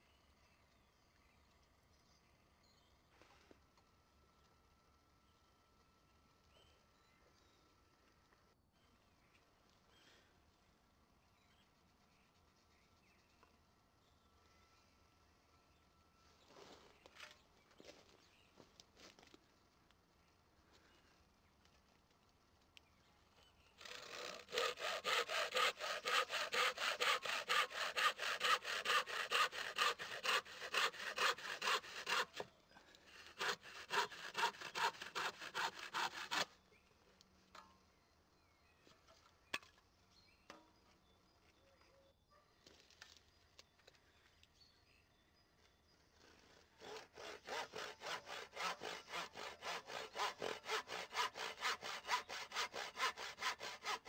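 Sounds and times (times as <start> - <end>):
hand saw cutting wood: 23.8 - 32.5, 33.1 - 36.5, 46.2 - 54.0.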